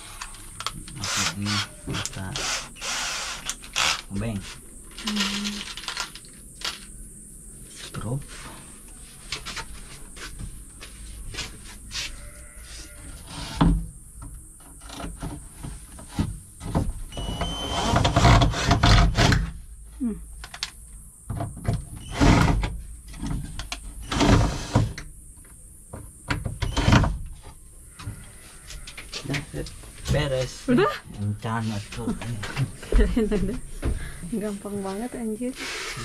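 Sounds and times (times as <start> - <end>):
cordless drill driving screws: 2.4 - 4.1.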